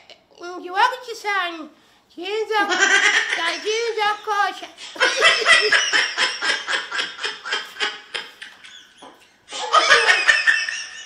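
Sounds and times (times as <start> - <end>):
person laughing hard: 4.9 - 11.0.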